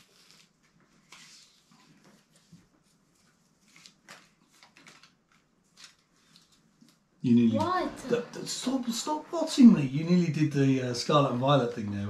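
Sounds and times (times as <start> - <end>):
trading cards rustling and clicking: 3.6 - 7.0.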